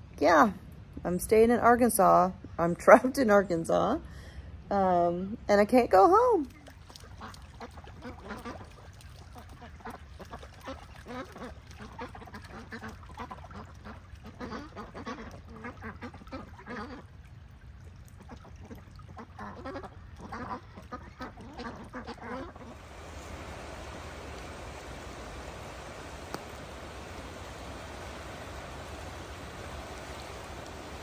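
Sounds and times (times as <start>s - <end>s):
floodwater rushing: 6.5s - 31.0s
ducks quacking: 7.0s - 17.1s, 18.2s - 31.0s.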